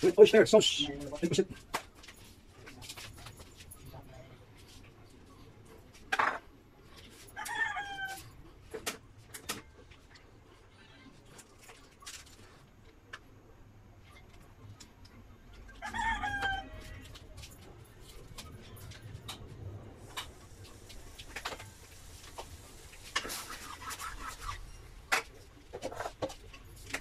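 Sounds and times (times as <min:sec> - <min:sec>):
rooster crowing: 0:07.4 - 0:08.3, 0:15.8 - 0:17.2.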